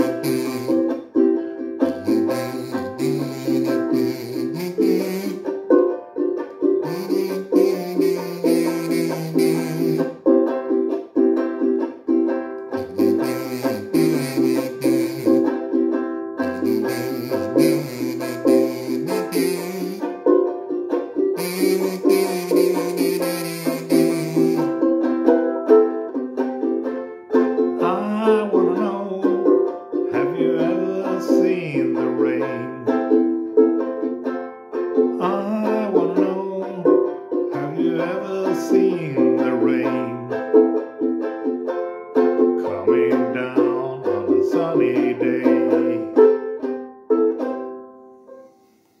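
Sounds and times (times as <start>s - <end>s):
harmonica held notes: 0.0s - 10.4s, 12.7s - 20.5s, 21.2s - 25.0s
ukulele strumming: 0.0s - 48.9s.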